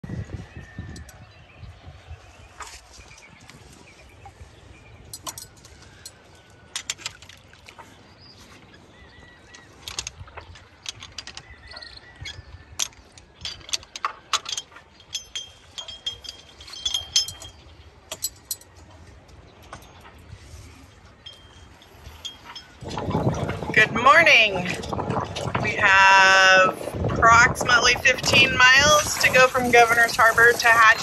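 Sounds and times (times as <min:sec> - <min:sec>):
anchor chain clinking on metal: 0:05.0 - 0:07.4, 0:09.6 - 0:26.6, 0:27.2 - 0:31.0.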